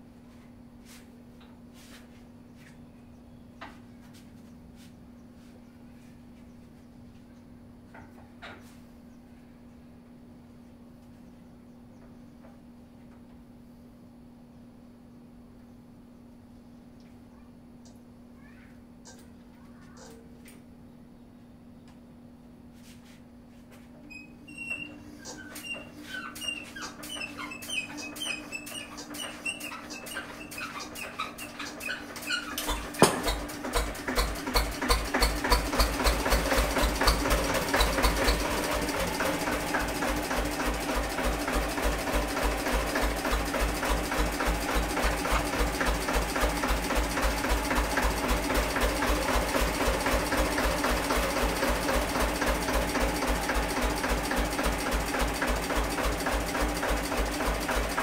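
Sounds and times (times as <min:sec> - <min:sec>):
faint squeaks: 0:24.0 - 0:32.9
stationary engine running: 0:32.6 - 0:58.0.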